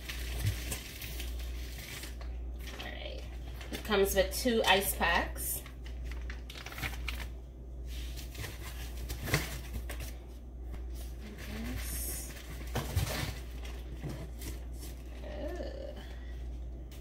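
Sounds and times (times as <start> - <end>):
cardboard rustling and scraping: 10.8 - 15.1.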